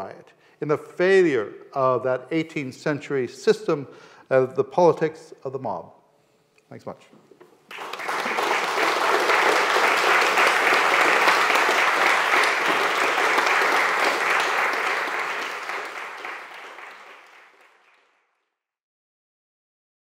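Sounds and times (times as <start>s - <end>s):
audience applauding: 7.7s - 18.2s.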